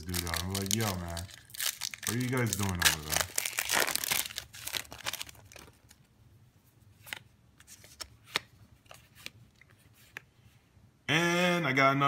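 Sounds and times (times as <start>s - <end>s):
foil wrapper crinkling: 0.0s - 6.0s
cards flipped by hand: 7.0s - 10.3s.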